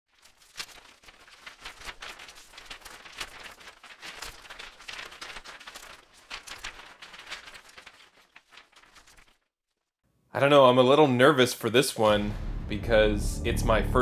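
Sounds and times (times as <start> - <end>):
rustling crackling clicks and swishes: 0.1 - 10.0.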